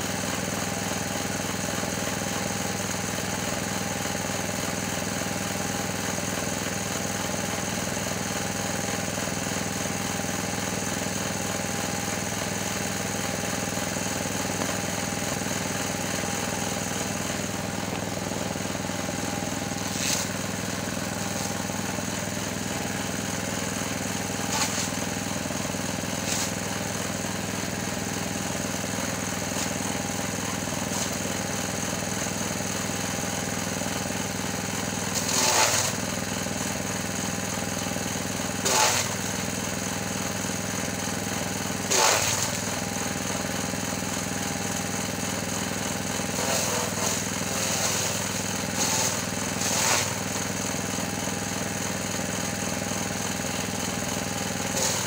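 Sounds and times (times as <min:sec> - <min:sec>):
small petrol engine running: 0:00.0 - 0:55.0
chopping bursts: 0:24.4 - 0:25.0, 0:35.2 - 0:36.0, 0:38.6 - 0:39.2, 0:41.9 - 0:42.6, 0:46.4 - 0:50.2, 0:54.7 - 0:55.0.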